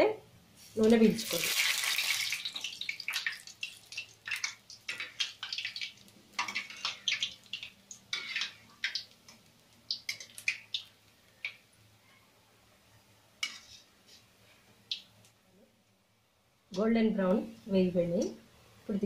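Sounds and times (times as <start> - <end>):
food crackling in hot oil: 0.8 - 11.8, 14.8 - 15.4.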